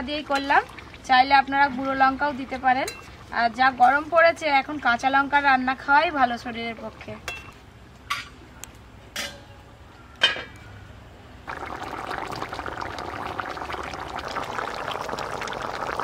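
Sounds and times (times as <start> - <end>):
curry bubbling in a pan: 0.0 - 3.7, 11.5 - 16.0.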